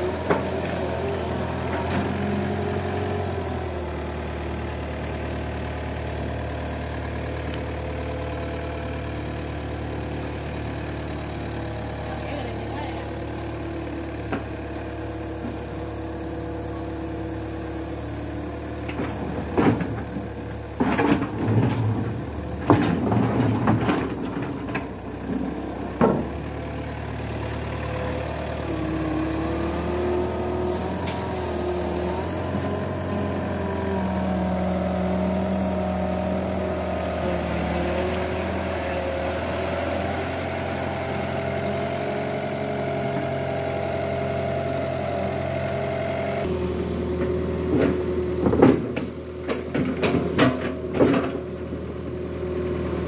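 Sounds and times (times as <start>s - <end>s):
excavator diesel engine running: 0.0s - 53.0s
loud clanks and knocks: 18.9s - 25.0s, 25.9s - 26.5s, 47.2s - 51.5s.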